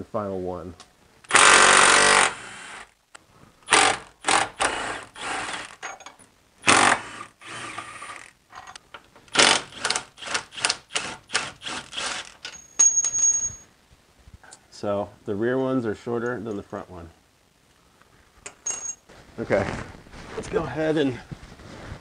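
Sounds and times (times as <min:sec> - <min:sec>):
impact wrench bursts: 0:01.3 - 0:02.9, 0:03.7 - 0:05.8, 0:06.6 - 0:08.3, 0:09.3 - 0:12.6.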